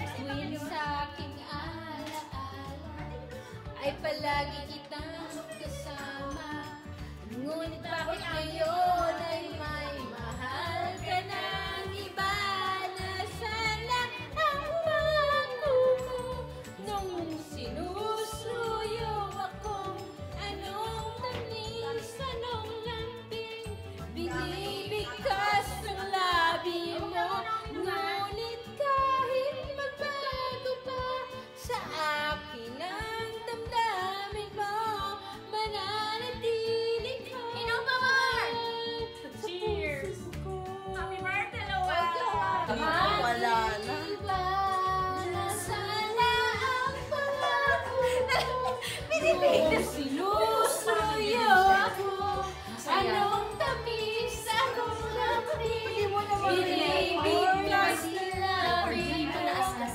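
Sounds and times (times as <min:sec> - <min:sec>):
woman singing: 0:00.0 - 0:59.9
high singing voice: 0:42.0 - 0:59.9.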